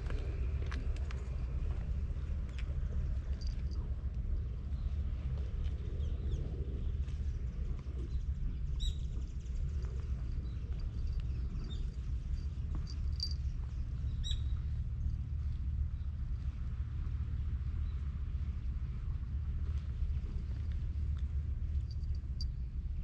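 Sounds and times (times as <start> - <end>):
low rumble: 0.0 - 23.0
small birds chirping: 8.0 - 14.6.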